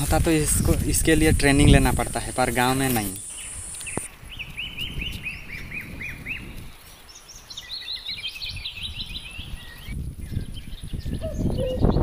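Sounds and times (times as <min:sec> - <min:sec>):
footsteps on grass: 0:00.0 - 0:08.5
bird chirping: 0:03.0 - 0:12.0.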